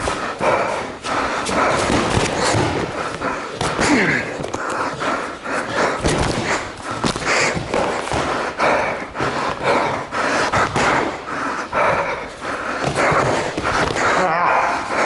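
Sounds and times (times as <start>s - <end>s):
hard quick breathing: 0.0s - 15.0s
gloved punches thudding: 1.5s - 4.6s, 5.9s - 9.6s, 12.8s - 14.2s.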